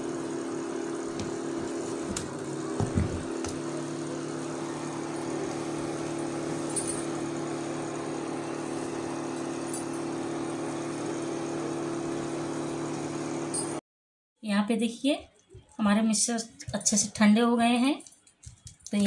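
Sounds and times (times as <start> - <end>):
induction cooktop humming: 0.0 - 13.8.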